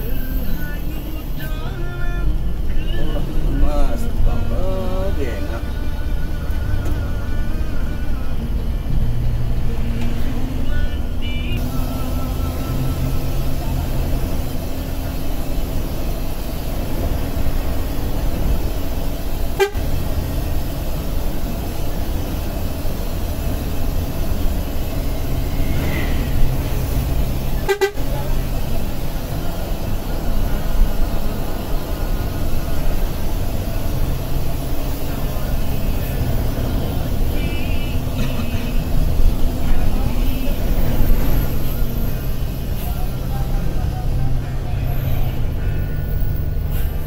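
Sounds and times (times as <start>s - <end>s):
bus engine and road rumble: 0.0s - 47.0s
horn toots: 19.5s - 20.0s, 25.5s - 28.4s.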